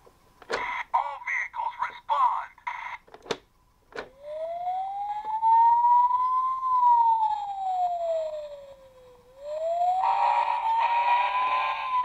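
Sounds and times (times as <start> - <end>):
toy siren wailing: 4.2 - 12.0.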